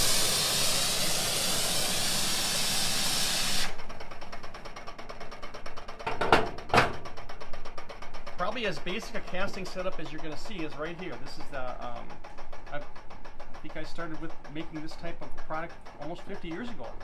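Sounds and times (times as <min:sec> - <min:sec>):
gas torch flame hissing: 0:00.0 - 0:03.8
casting machine arm whirring: 0:00.0 - 0:04.4
knocks: 0:06.0 - 0:07.2.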